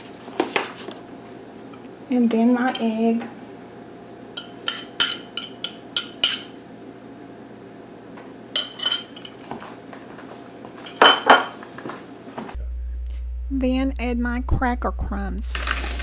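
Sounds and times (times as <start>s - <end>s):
utensils clinking on ceramic: 4.4s - 6.5s, 8.6s - 9.5s, 10.8s - 11.5s.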